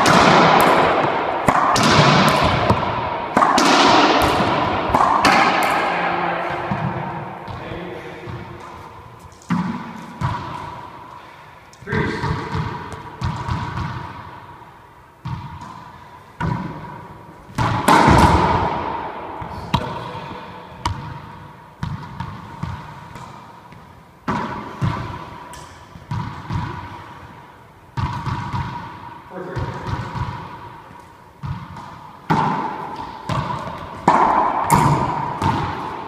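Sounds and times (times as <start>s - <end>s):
racquetball smacks with echo: 0.0s - 36.0s.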